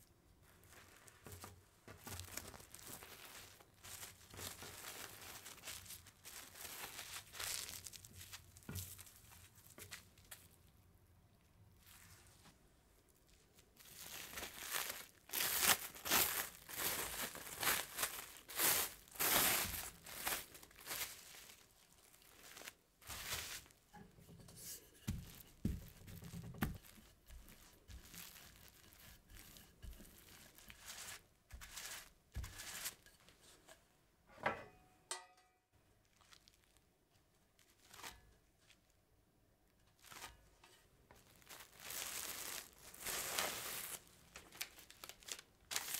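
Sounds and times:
cling film crinkling: 2.0 - 10.6, 13.5 - 23.8, 25.3 - 32.1, 36.0 - 36.9, 41.2 - 45.9
rolling pin rolling dough: 24.1 - 33.1.

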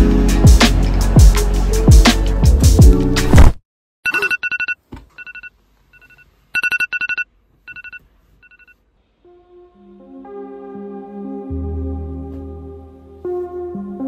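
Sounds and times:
music: 0.0 - 3.5, 9.1 - 14.0
phone electronic beeps: 4.1 - 8.8
soft ambient synth music: 9.2 - 14.0.

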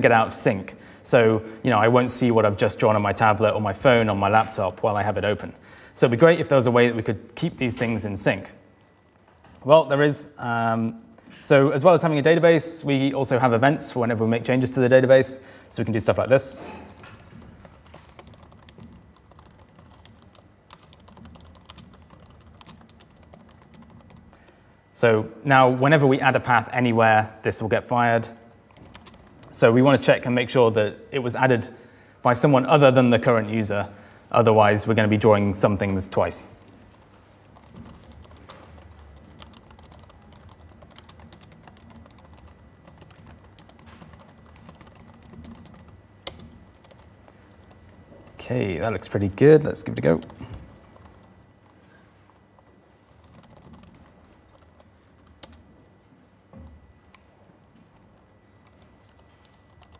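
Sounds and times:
fast typing on laptop keyboard: 8.4 - 9.7, 16.4 - 24.4, 28.3 - 29.7, 36.2 - 49.1, 49.7 - 55.9, 57.9 - 59.9.

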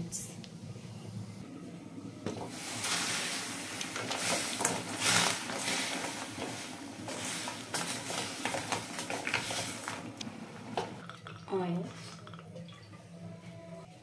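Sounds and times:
crab sizzling in a pan: 2.6 - 10.1.

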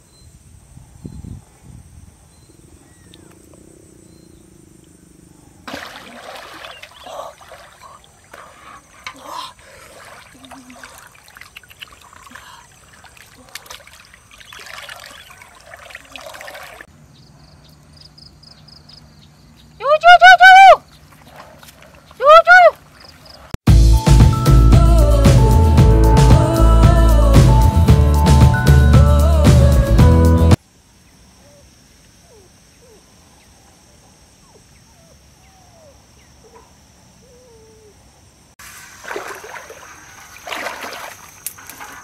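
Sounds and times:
person wading through water: 5.7 - 16.9, 20.8 - 23.6, 38.6 - 42.0.

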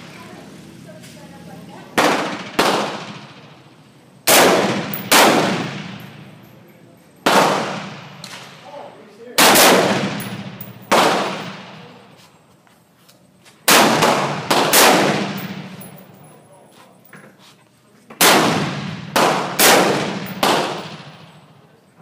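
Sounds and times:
rifle shots: 2.0 - 6.3, 7.2 - 8.6, 9.4 - 12.0, 13.7 - 16.0, 18.2 - 21.6.

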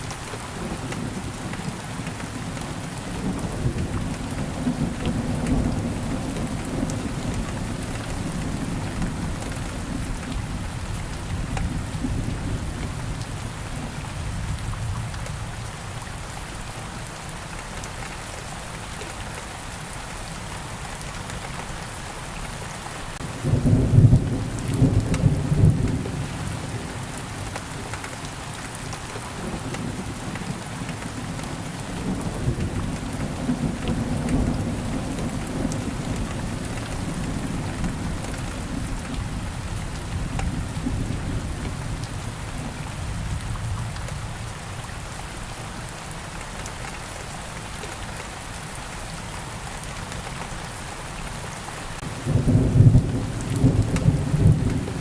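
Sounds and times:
steady rain falling: 0.0 - 55.0
rolling rumbles of thunder: 23.4 - 26.9, 52.0 - 55.0.

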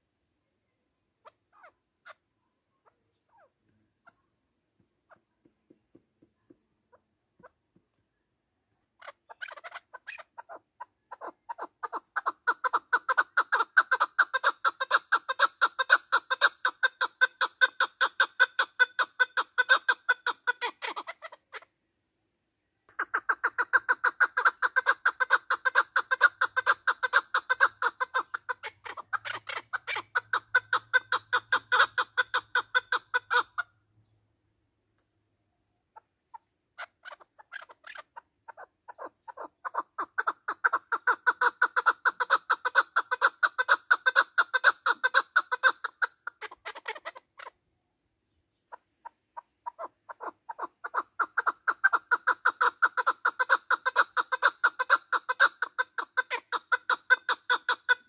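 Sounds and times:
partridge calling: 9.0 - 21.7, 22.9 - 34.3, 35.9 - 47.6, 48.6 - 58.0.

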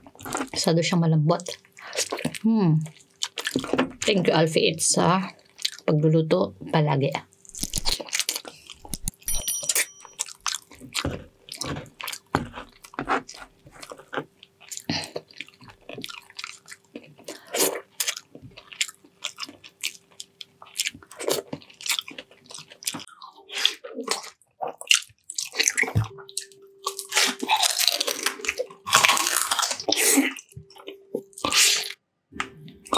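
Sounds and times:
chewing and lip smacking: 1.4 - 3.8, 5.4 - 5.9, 7.3 - 9.3, 10.1 - 32.9.

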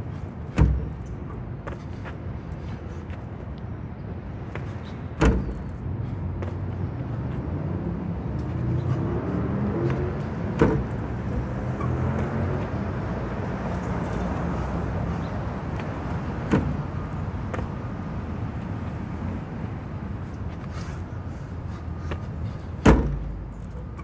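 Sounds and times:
feet thumping landing: 0.1 - 3.5, 4.3 - 7.4, 9.8 - 11.4, 15.2 - 18.0, 21.8 - 23.7
car engine passing: 6.4 - 16.9.

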